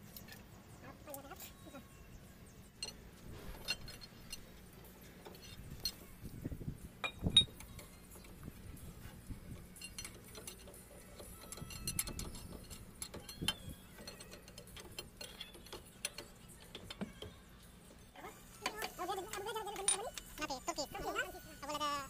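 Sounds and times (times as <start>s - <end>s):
socket wrench clicking: 9.8s - 17.4s.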